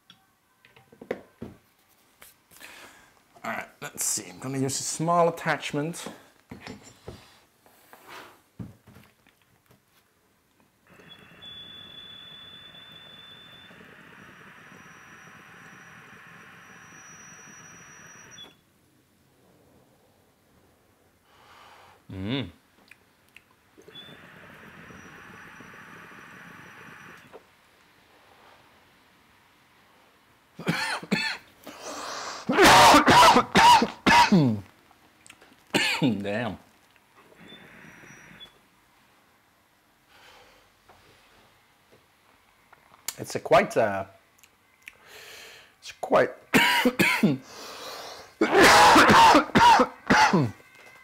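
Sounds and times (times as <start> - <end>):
man coughing hard: 30.6 - 31.4, 32.4 - 34.6, 35.8 - 36.1, 46.5 - 47.5, 48.4 - 50.6.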